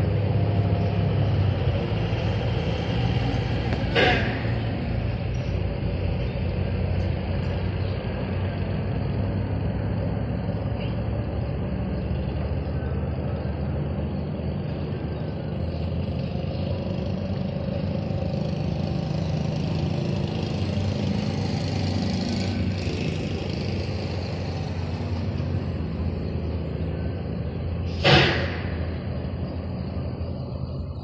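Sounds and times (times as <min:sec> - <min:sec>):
road traffic rumble: 0:00.0 - 0:31.0
short loud hiss: 0:27.9 - 0:28.6.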